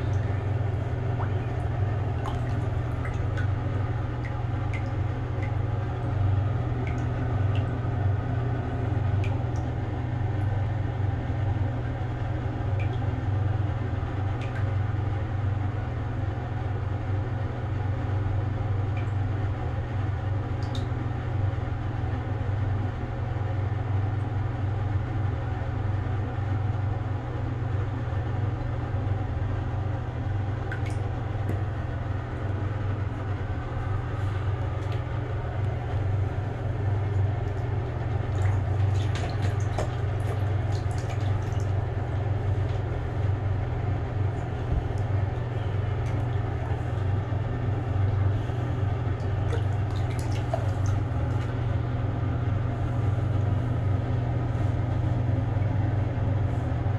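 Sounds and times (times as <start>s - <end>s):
water splashing and dripping: 0.0s - 7.9s, 8.9s - 9.8s, 12.7s - 13.1s, 14.3s - 14.8s, 30.6s - 31.7s, 34.0s - 43.3s, 44.3s - 47.2s, 49.1s - 51.8s
steady low hum: 0.0s - 56.9s.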